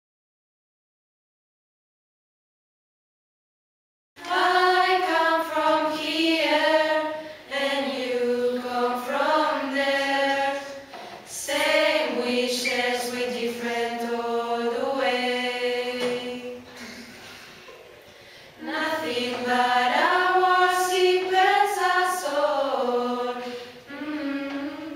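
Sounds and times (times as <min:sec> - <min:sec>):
choir of young voices singing: 0:04.2 - 0:17.3, 0:18.6 - 0:24.9.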